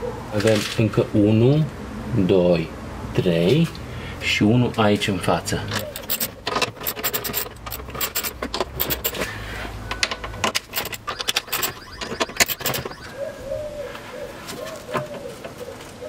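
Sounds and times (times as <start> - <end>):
metal tools clinking against screws: 5.7 - 9.3, 10.4 - 12.9
pigeon cooing: 5.8 - 6.3, 10.8 - 16.0.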